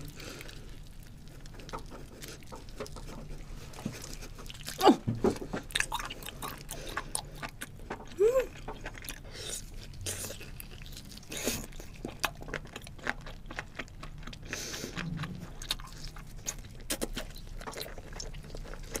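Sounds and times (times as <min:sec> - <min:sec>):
wet chewing: 0:00.0 - 0:19.0
person humming: 0:08.2 - 0:08.5.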